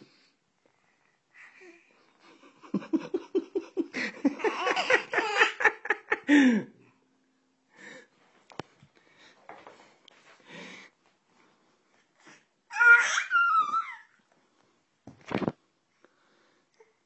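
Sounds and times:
hearty laughter: 0:02.2 - 0:06.6.

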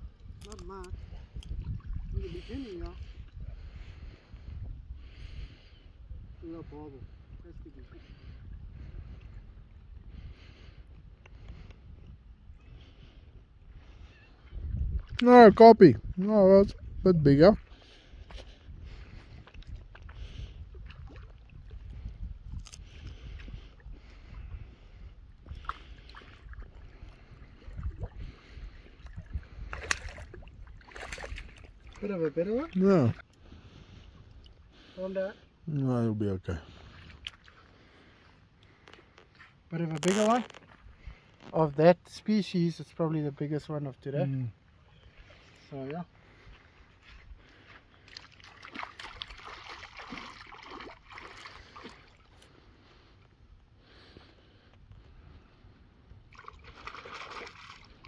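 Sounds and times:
wind noise on microphone: 0:00.0 - 0:32.0
water lapping: 0:00.4 - 0:11.8, 0:12.7 - 0:41.5, 0:44.3 - 0:58.0.

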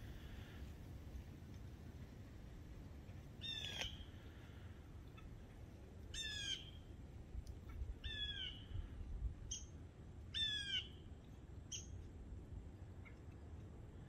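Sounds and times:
bird calling: 0:03.4 - 0:04.5, 0:06.1 - 0:06.9, 0:08.0 - 0:08.8.

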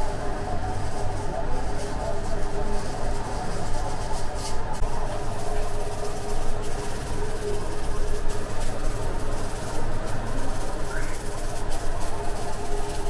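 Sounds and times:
machinery rumble and hum: 0:00.0 - 0:13.0.

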